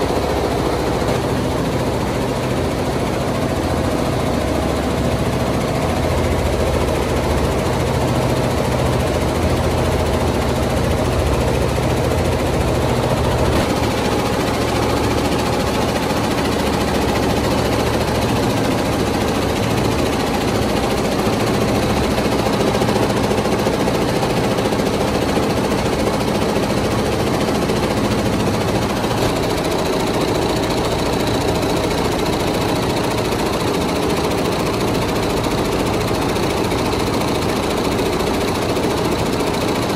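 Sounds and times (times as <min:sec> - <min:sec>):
embroidery machine stitching: 0:00.0 - 0:39.9.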